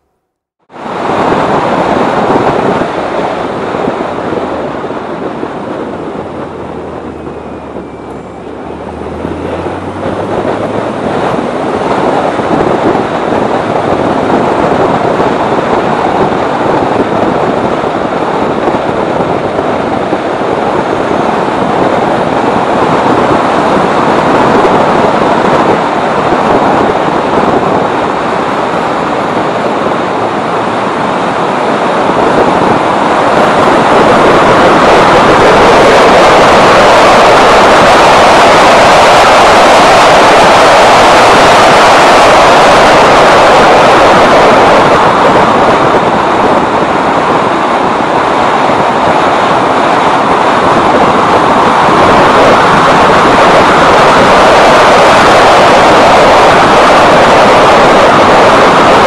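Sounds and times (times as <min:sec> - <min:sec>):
wind and tyre roar: 0:00.0 - 0:59.0
low car engine note: 0:04.4 - 0:14.1.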